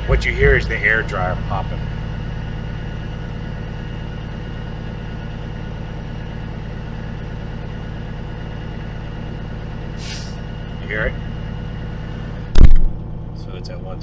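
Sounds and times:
air compressor running: 0.0s - 13.2s
diesel engine idling: 0.0s - 14.0s.

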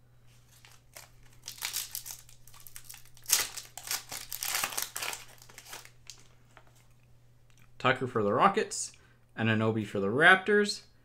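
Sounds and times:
foil wrapper tearing and crinkling: 0.4s - 6.3s.

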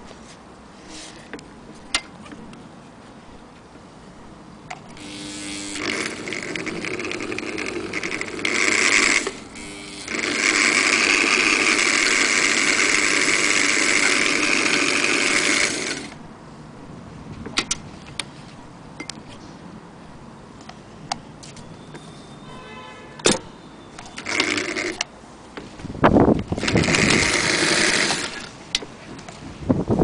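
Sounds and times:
electric sewing machine running: 5.0s - 16.2s, 24.2s - 25.0s, 26.6s - 28.5s.

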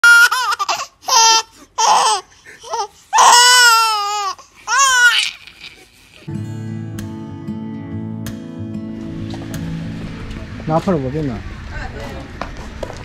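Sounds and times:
baby squealing laughter: 0.0s - 6.3s.

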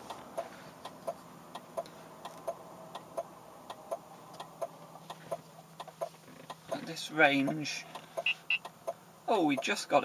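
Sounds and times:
radar detector beeping ticks: 7.4s - 8.7s.

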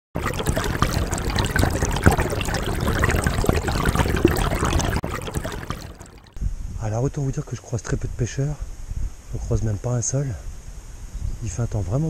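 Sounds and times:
river water trickling and splashing: 0.2s - 6.4s.

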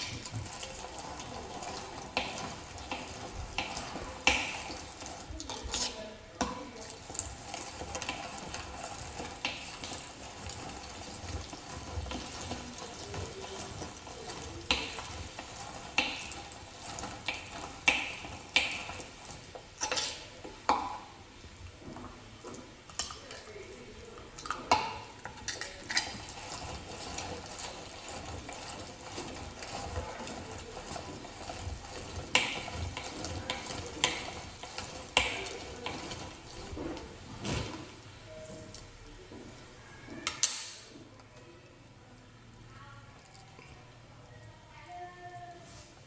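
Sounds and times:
meat grinder grinding: 0.0s - 5.9s, 7.0s - 20.1s, 26.0s - 37.0s.

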